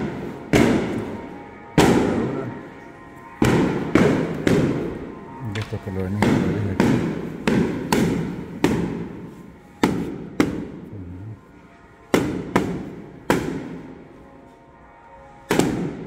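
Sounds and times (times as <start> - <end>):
sharp loud bangs with echo: 0.0 - 2.4, 3.3 - 5.1, 6.1 - 10.9, 12.1 - 14.0, 15.4 - 16.0.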